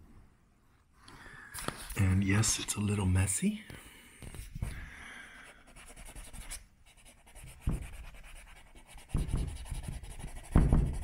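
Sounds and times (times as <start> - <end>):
scratchy rubbing on wood: 5.7 - 11.0.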